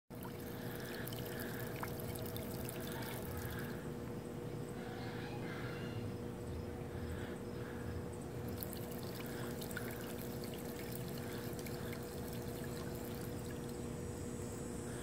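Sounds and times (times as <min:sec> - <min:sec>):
water trickling: 0:00.1 - 0:03.8, 0:08.3 - 0:14.4
electric hum: 0:00.1 - 0:15.0.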